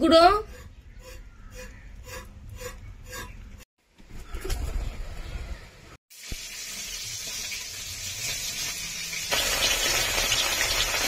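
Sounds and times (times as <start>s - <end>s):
hot oil sizzling and crackling: 6.1s - 11.0s.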